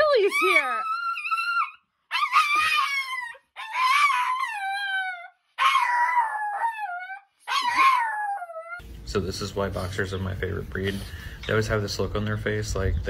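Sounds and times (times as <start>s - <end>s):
dog howling: 0.0s - 8.8s.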